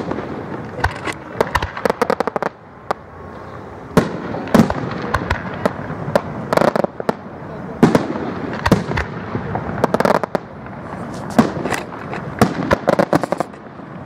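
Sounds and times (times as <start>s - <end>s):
fireworks bursting: 0.0s - 14.0s.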